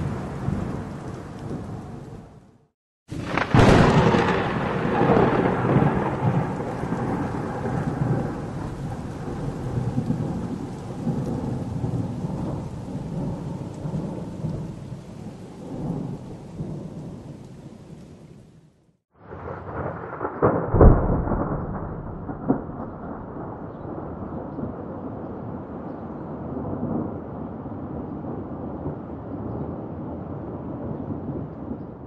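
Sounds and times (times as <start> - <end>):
thunder rolling rumble: 0.0 - 18.6, 19.2 - 32.0
thunder crack: 3.1 - 14.9, 19.2 - 25.6.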